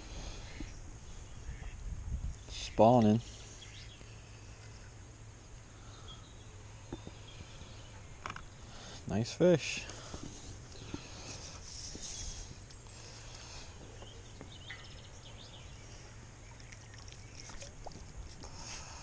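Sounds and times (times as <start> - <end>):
fishing pole clicks and rustles: 16.6 - 18.9.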